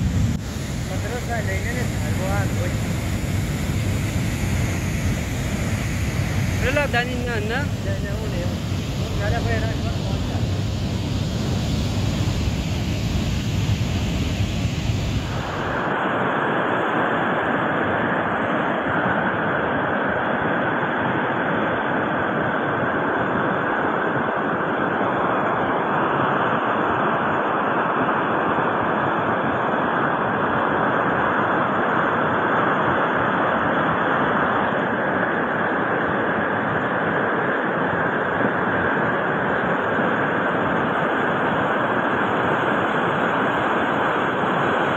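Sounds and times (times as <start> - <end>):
flooded river rushing: 5.1 - 12.8.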